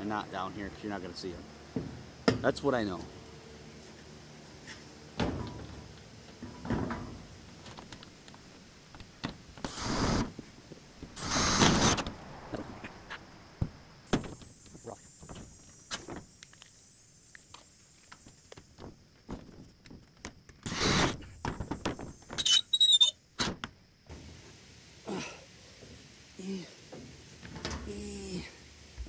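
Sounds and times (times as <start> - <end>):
power drill driving screws into metal: 9.6 - 10.3, 11.2 - 12.0, 20.6 - 21.2.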